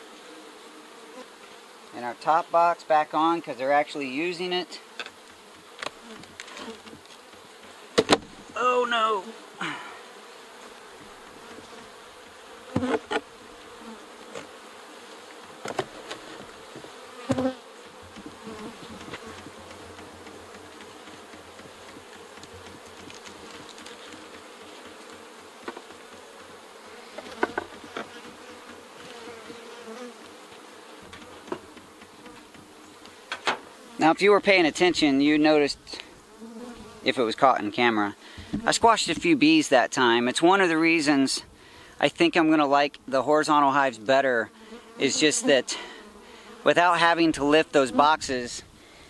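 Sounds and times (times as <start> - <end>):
bees buzzing: 0.0 - 49.0
knocks of wooden hive parts: 5.0 - 8.6, 12.2 - 13.3, 15.3 - 29.6, 31.0 - 33.7, 38.3 - 39.3.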